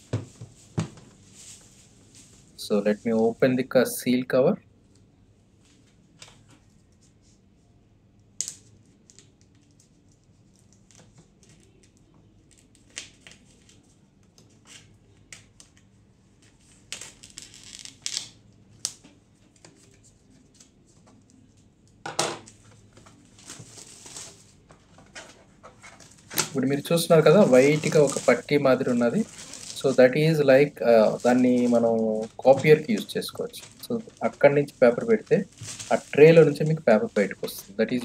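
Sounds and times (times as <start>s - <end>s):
plastic film crackling: 8.4s - 13.9s, 16.4s - 20.8s, 22.5s - 24.8s, 25.8s - 38.0s.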